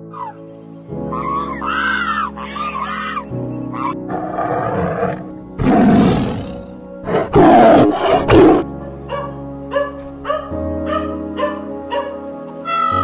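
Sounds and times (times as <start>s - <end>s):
background music: 0.0s - 13.0s
lion roaring: 4.1s - 8.6s.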